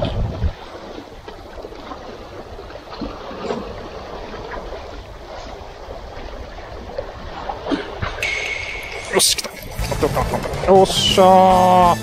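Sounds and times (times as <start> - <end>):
wind on microphone: 0.0 - 10.4.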